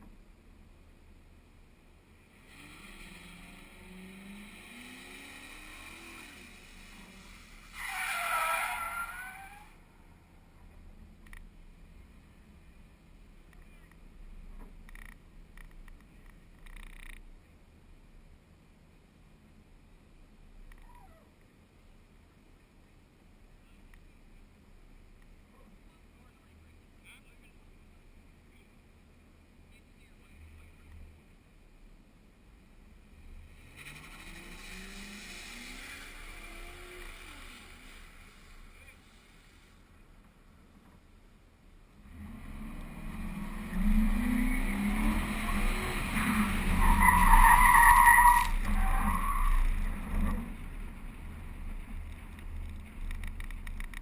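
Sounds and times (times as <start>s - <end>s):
distant car engine revving: 2.3s - 11.4s, 33.0s - 39.0s, 42.0s - 54.0s
tyre squeal: 5.2s - 9.8s, 46.1s - 50.5s
faint ticks: 11.2s - 11.5s, 13.4s - 17.3s, 20.6s - 21.5s.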